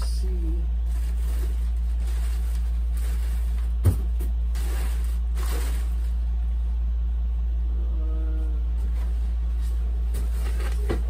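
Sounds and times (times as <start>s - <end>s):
steady low hum: 0.0s - 11.0s
plastic wrap and styrofoam rustling: 0.8s - 6.2s, 8.8s - 11.0s.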